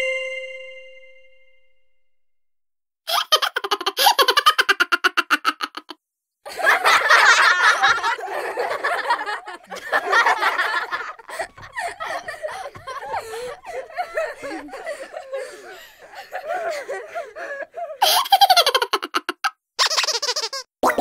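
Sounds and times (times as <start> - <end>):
person laughing: 3.1 - 20.6.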